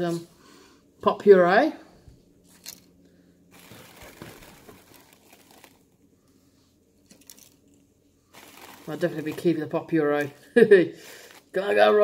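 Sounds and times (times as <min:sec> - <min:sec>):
packaging crinkling and rustling: 0:03.5 - 0:06.0, 0:07.0 - 0:10.3.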